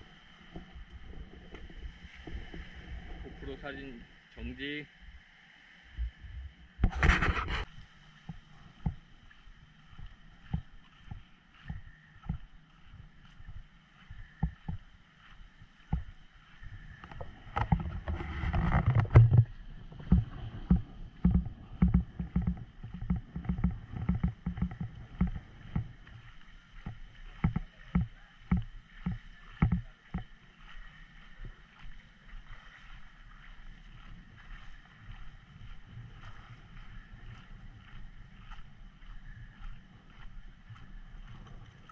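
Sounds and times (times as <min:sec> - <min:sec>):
handheld camera thumps and rumble: 0:00.0 - 0:03.5, 0:06.0 - 0:13.7, 0:14.3 - 0:30.4.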